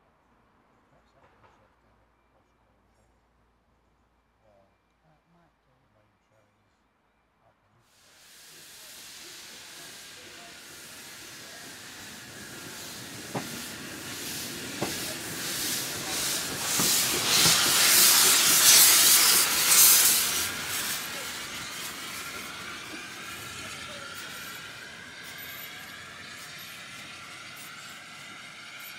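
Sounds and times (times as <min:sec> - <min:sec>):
steam locomotive hissing: 0:07.9 - 0:28.9.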